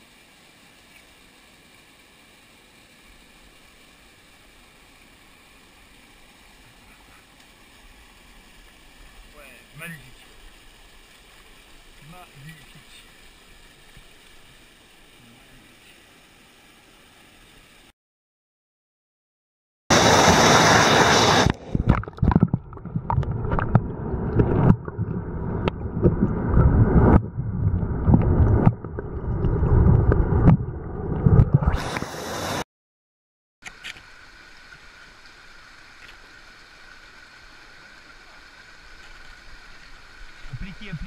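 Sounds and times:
mountain stream running: 0.0s - 17.9s, 19.9s - 26.6s, 33.6s - 41.0s
rush of water: 0.0s - 17.9s, 19.9s - 32.6s, 33.6s - 41.0s
water splashes: 0.0s - 17.9s, 19.9s - 32.6s, 33.6s - 41.0s
water sloshing underwater: 20.3s - 31.8s.

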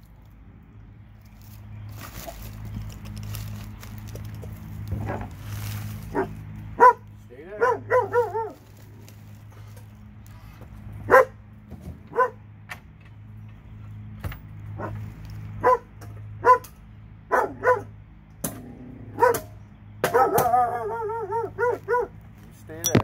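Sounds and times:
dog barking: 6.1s - 8.6s, 11.1s - 11.4s, 12.1s - 12.4s, 15.6s - 16.7s, 17.3s - 17.9s, 19.2s - 22.2s.

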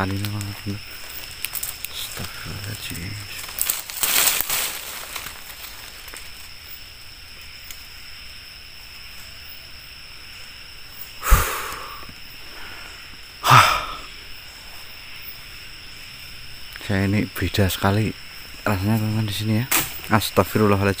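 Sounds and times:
breath thump on microphone: 11.2s - 11.9s
person breathing out heavily: 11.2s - 14.1s.

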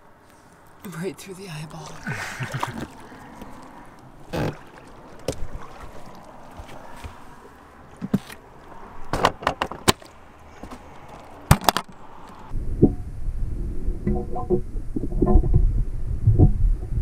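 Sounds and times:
underwater rumble and pattering: 12.6s - 17.0s.

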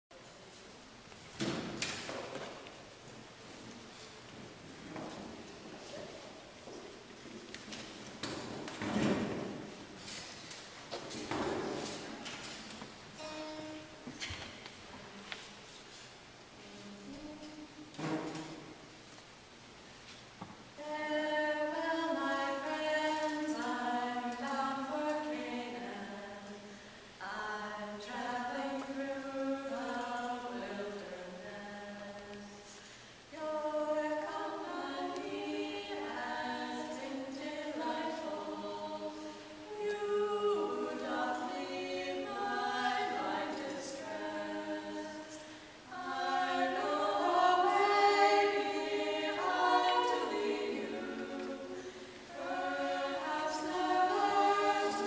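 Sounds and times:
women singing a hymn in harmony: 20.8s - 55.0s.

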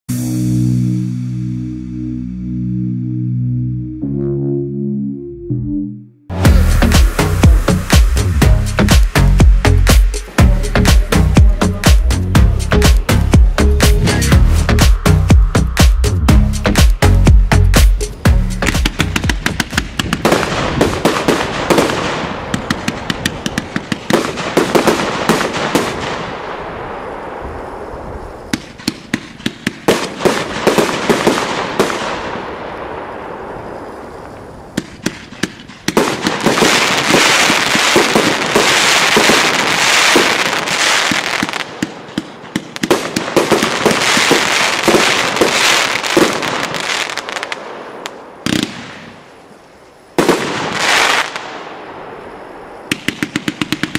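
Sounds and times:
crackling of bursting fireworks: 6.3s - 53.9s
firework launch shots: 18.6s - 49.3s, 50.2s - 52.0s, 52.8s - 53.9s.

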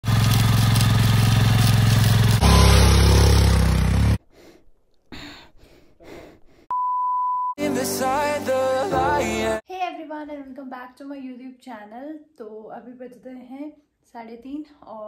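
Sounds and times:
motorcycle engine revving: 0.0s - 4.2s.

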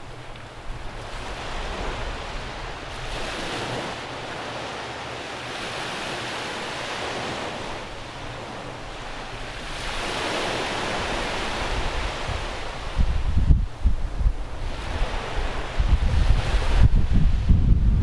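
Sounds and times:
small waves breaking on beach: 0.0s - 17.5s.

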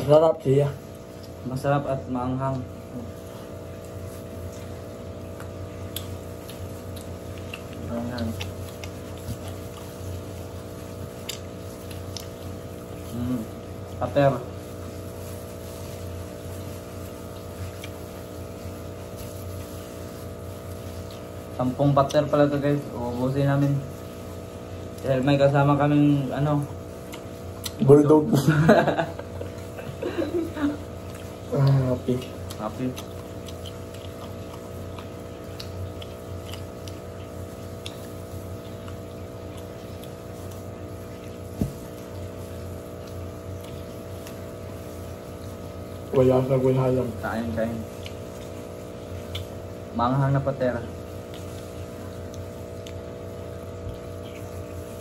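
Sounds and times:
steady machine hum: 0.0s - 55.0s
chewing: 0.8s - 55.0s
plastic gloves crinkling: 2.7s - 38.6s.

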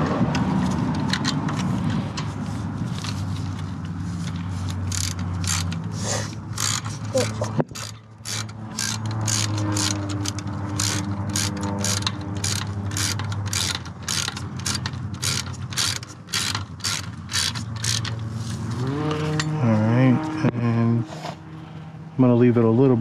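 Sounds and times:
socket ratchet clicking: 0.3s - 2.2s, 3.0s - 18.3s.

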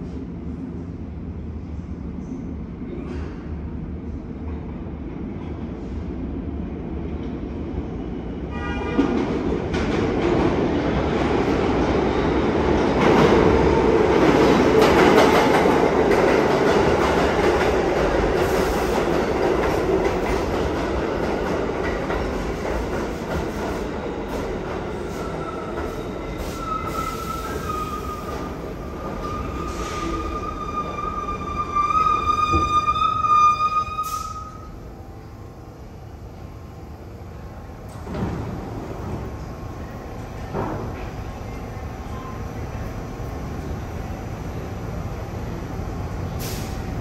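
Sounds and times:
subway train rumbling over rails: 0.0s - 47.0s.

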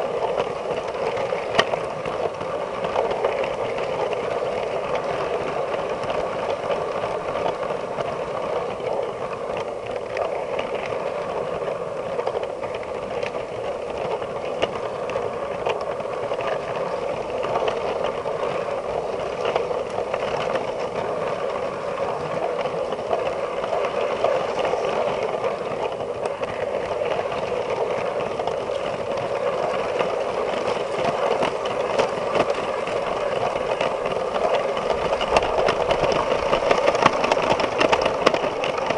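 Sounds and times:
wheels rattling on track: 0.0s - 38.9s
toy train motor whirring: 10.0s - 38.9s.

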